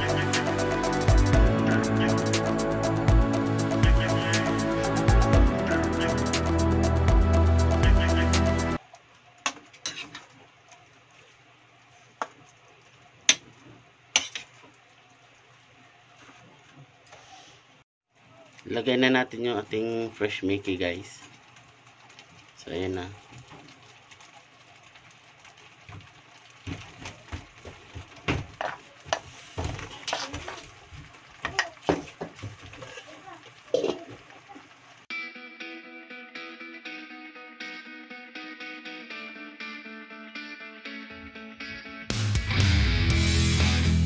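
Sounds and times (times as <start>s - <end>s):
spatula scraping a wok: 9.8s - 10.4s, 14.1s - 14.6s, 28.6s - 30.6s, 32.6s - 33.2s.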